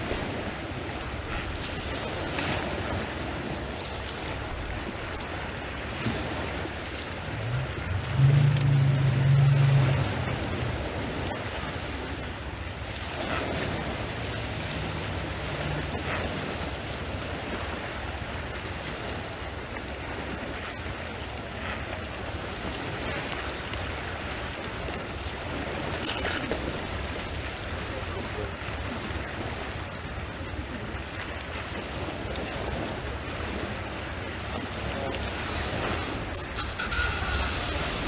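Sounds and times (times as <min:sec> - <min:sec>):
small waves on pebble shore: 0:00.0 - 0:38.0
wind on microphone: 0:00.0 - 0:38.0
low hum: 0:06.8 - 0:12.4.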